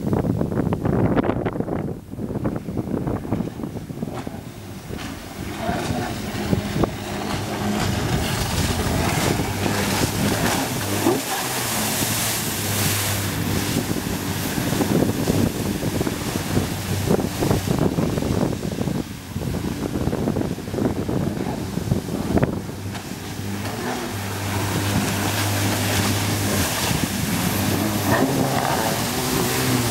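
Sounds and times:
boat engine drone: 0:00.0 - 0:29.9
wind on microphone: 0:00.0 - 0:29.9
hiss of spray and water: 0:21.8 - 0:29.9.

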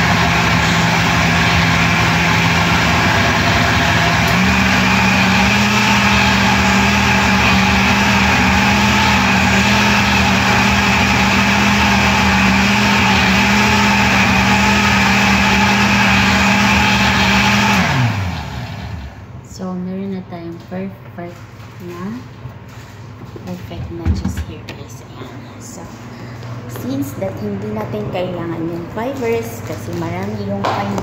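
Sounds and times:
blender motor running: 0:00.0 - 0:19.2.

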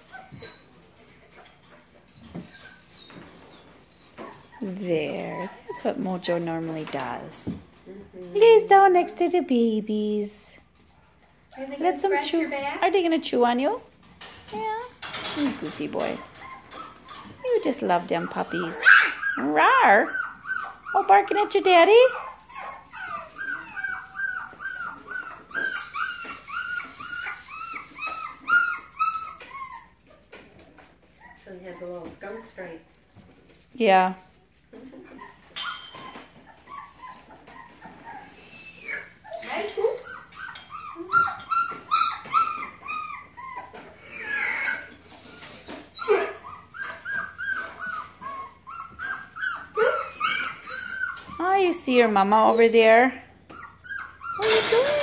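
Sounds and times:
puppy yipping: 0:00.0 - 0:06.0, 0:16.0 - 0:32.7, 0:34.8 - 0:55.0.

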